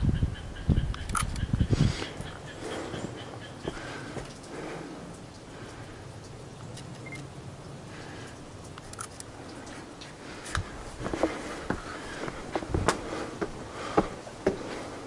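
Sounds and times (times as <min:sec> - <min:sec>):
footsteps on stone steps: 0:01.8 - 0:04.7, 0:09.7 - 0:15.0.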